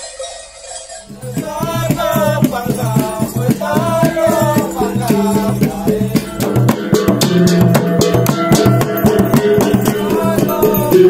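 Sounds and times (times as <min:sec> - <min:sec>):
wavering melody: 0:00.0 - 0:11.0
drums and rattles beat: 0:01.0 - 0:11.0.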